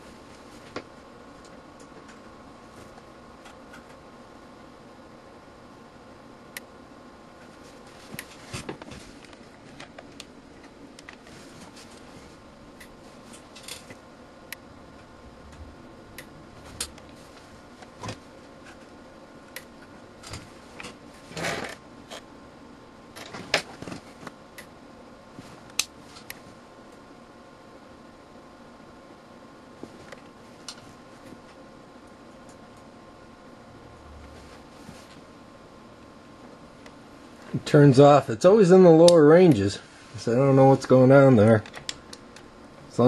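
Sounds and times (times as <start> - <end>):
steady electrical hum: 0.0 - 43.0
sharp electrical clicks and snaps: 12.7 - 17.2, 23.1 - 24.8, 25.6 - 27.0, 41.6 - 42.5.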